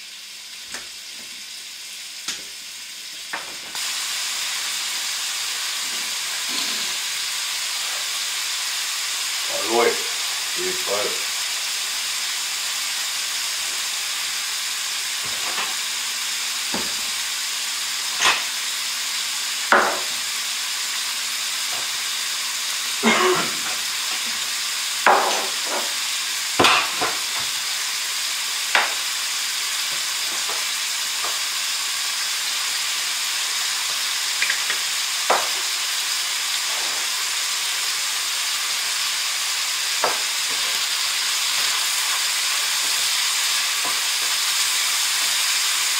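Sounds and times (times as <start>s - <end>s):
bacon sizzling in skillet: 0.0s - 45.9s.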